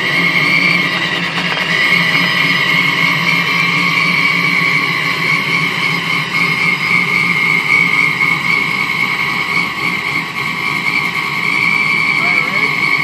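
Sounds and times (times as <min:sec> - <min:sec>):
car engine idling: 0:00.0 - 0:13.0
high-pitched supercharger whine: 0:00.0 - 0:13.0.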